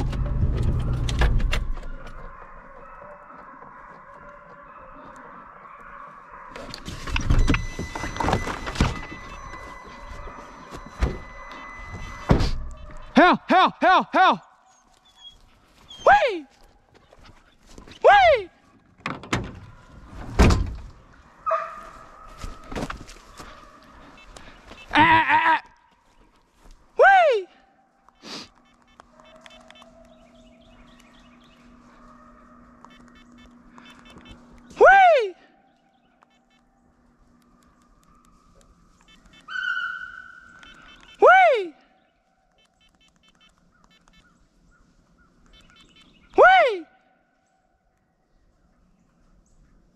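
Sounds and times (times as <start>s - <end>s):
small birds chirping: 14.4s - 18.1s, 28.0s - 34.8s, 35.5s - 46.4s.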